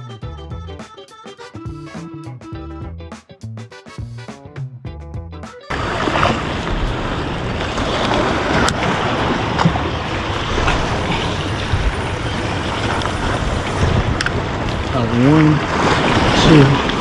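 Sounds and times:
waves breaking against rocks: 0:05.7 - 0:17.0
wind buffeting microphone: 0:05.7 - 0:17.0.

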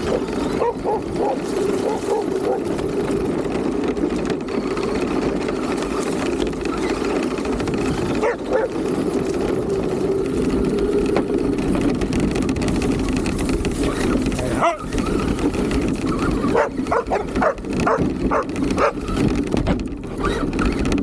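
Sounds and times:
rc car motor running: 0:00.0 - 0:21.0
tires over dirt and leaves: 0:00.0 - 0:21.0
dog barking: 0:00.1 - 0:02.6, 0:08.2 - 0:08.8, 0:14.5 - 0:14.9, 0:16.5 - 0:19.0.

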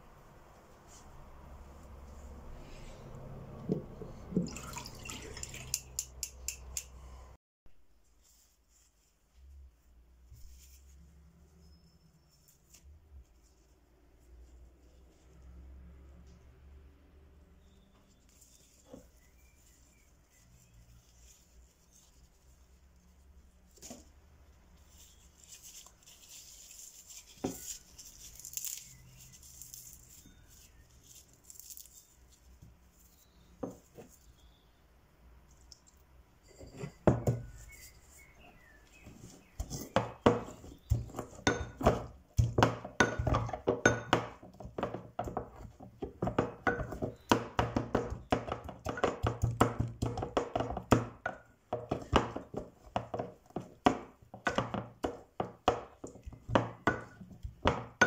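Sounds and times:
rolling pin crushing leaves in bowl: 0:24.8 - 0:32.0, 0:38.6 - 0:58.0
leaves crumpled by hand: 0:24.8 - 0:32.6.

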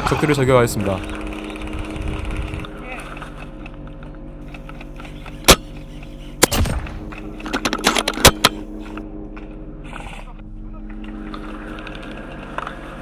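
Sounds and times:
airsoft rifle shots snapping: 0:05.4 - 0:05.7, 0:06.4 - 0:07.1.

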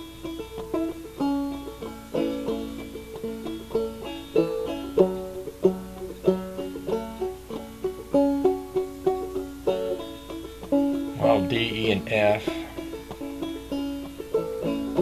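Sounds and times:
plucked banjo playing: 0:00.0 - 0:15.0.

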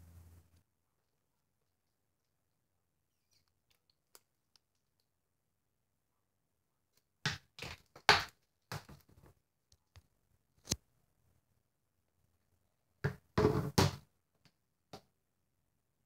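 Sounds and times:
objects knocking at a sink: 0:13.0 - 0:14.0.

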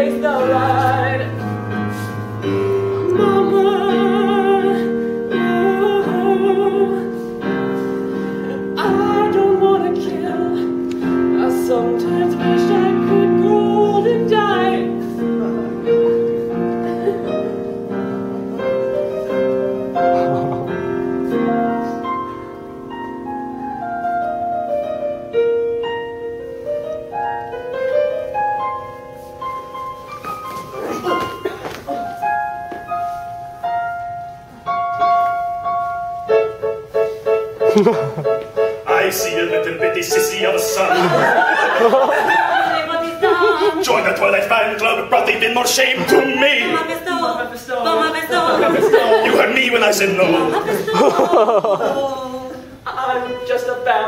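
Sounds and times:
piano accompaniment: 0:00.0 - 0:54.0
person singing: 0:03.0 - 0:07.3, 0:08.5 - 0:16.0.

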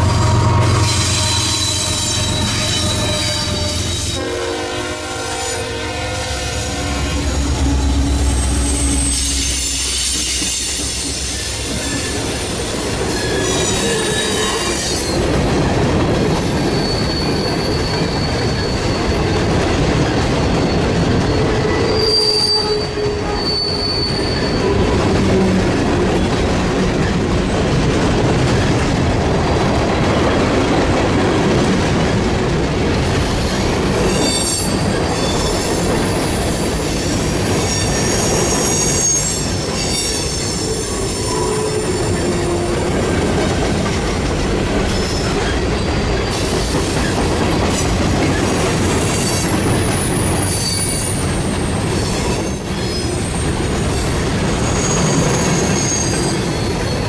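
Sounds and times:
rumble of train wheels on rail: 0:00.0 - 0:57.0
high-pitched wheel squeals: 0:00.1 - 0:04.2, 0:05.3 - 0:12.5, 0:20.5 - 0:24.8, 0:37.6 - 0:42.7, 0:54.6 - 0:57.0.

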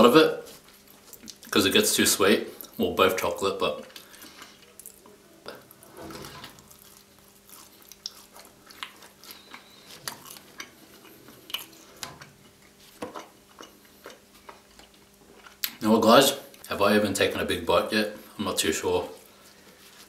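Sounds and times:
wet chewing mouth clicks: 0:07.5 - 0:15.8.

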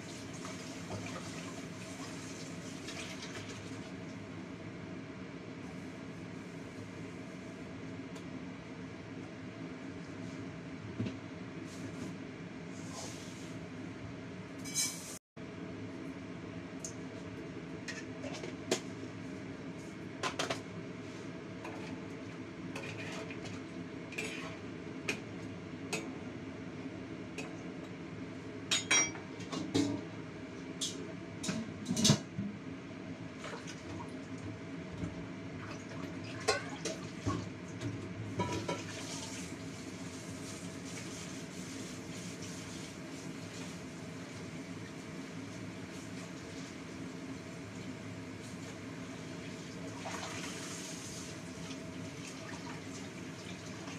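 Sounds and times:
metal spatula scraping a wok: 0:22.8 - 0:23.3, 0:24.2 - 0:24.6.

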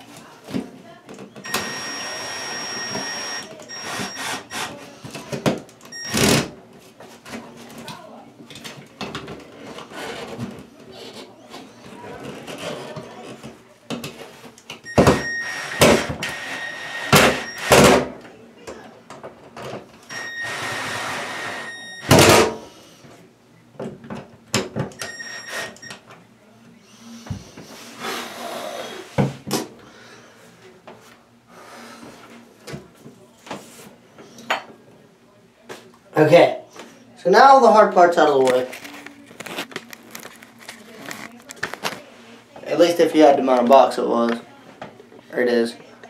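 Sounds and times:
cordless drill motor whining: 0:01.5 - 0:04.7.

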